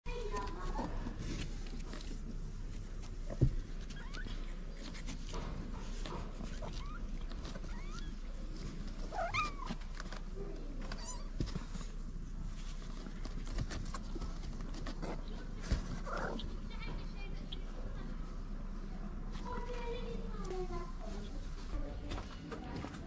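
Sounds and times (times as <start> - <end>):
kittens mewing: 6.4 - 9.9, 15.8 - 16.7.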